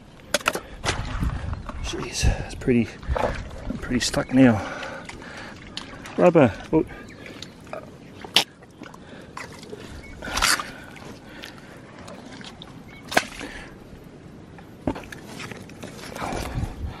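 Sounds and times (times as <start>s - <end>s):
footsteps squelching through mud: 3.0s - 13.7s.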